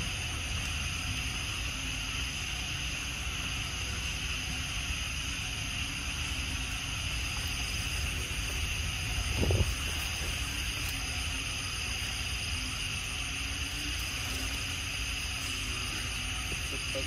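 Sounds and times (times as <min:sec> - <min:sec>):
steady high hiss: 0:00.0 - 0:17.0
wind rumble on microphone: 0:07.8 - 0:11.2.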